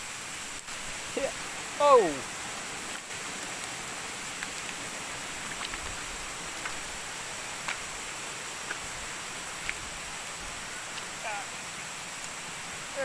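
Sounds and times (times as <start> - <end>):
forest ambience hiss: 0.0 - 13.0
footsteps on leaves and twigs: 2.8 - 11.2.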